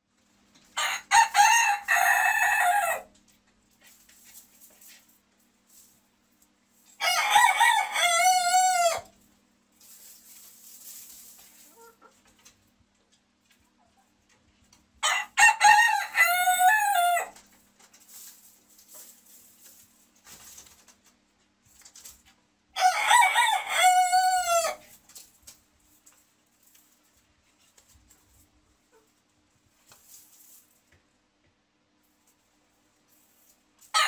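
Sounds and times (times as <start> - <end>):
rooster crowing: 0.8 - 3.1, 7.0 - 9.1, 15.0 - 17.4, 22.8 - 24.8.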